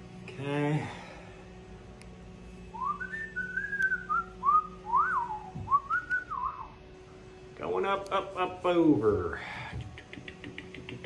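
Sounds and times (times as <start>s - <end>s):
low hum of machinery: 0.0s - 11.0s
person whistling a tune: 2.8s - 6.6s.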